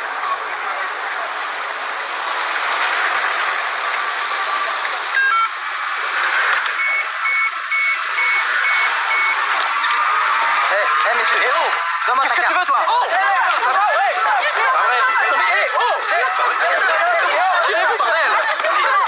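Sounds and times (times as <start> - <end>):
street background noise: 0.0 - 19.0
cash machine beeping: 5.1 - 9.5
quick electronic tones: 6.2 - 9.5.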